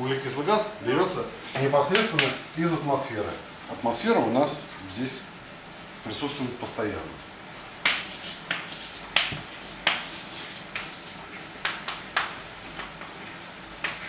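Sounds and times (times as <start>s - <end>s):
scratchy strokes: 7.8s - 11.2s.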